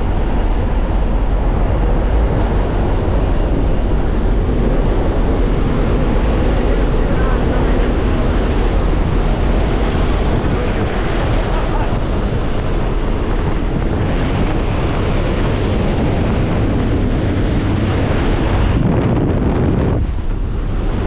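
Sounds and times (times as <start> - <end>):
plane engines droning: 0.0 - 21.0.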